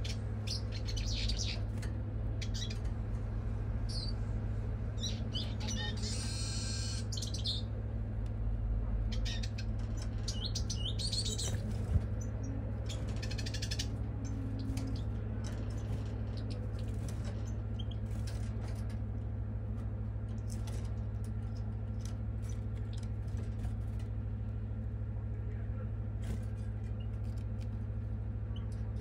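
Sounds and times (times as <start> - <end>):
bird chirps: 0.0 - 1.7, 2.4 - 2.9, 3.8 - 4.2, 5.0 - 7.7, 9.1 - 18.1
rapid bird trill: 0.0 - 1.7, 2.3 - 2.9, 3.8 - 4.2, 5.0 - 7.7, 9.1 - 18.1
steady low hum: 0.0 - 29.0.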